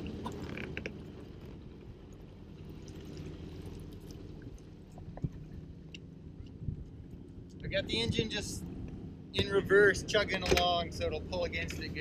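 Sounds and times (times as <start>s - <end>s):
water along hull: 0.0s - 7.6s
boat engine running: 0.0s - 12.0s.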